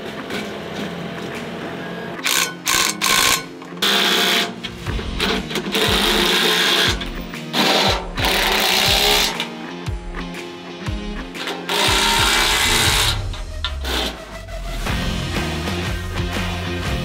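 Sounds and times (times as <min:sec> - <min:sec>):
background music: 0:00.0 - 0:17.0
impact driver hammering: 0:05.1 - 0:09.4.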